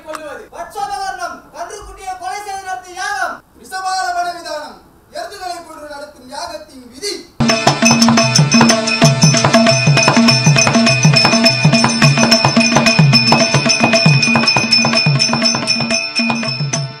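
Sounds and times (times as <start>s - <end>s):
fast dense drumming: 7.4s - 17.0s
steady high ringing tone: 7.4s - 17.0s.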